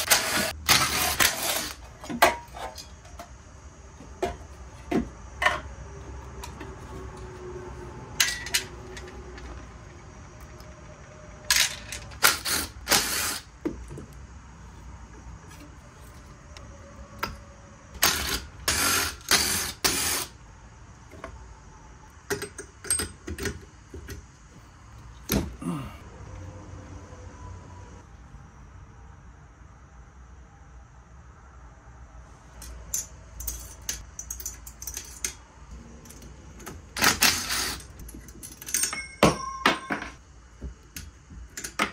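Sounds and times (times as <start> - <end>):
metal parts clinking: 8.2 - 9.7, 11.5 - 12.5, 32.6 - 35.4, 36.0 - 40.2.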